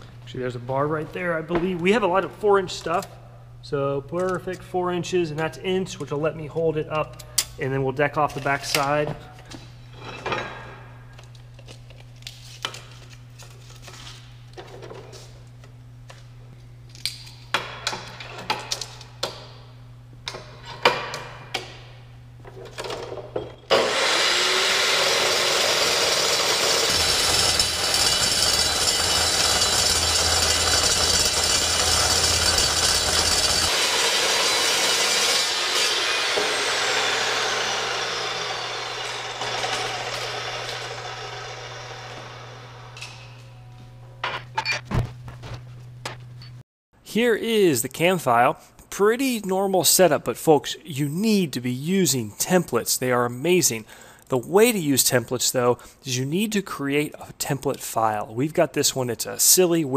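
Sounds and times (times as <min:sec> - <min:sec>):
chop saw cutting metal: 0:23.7 - 0:43.3
saw blade spinning down: 0:23.7 - 0:43.6.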